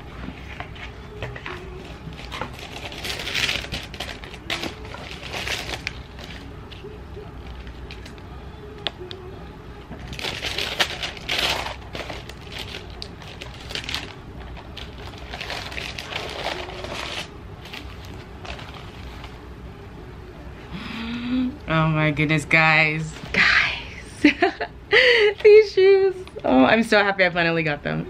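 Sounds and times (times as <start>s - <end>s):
paper and cardboard rustling: 0.2s - 6.8s, 10.0s - 19.4s.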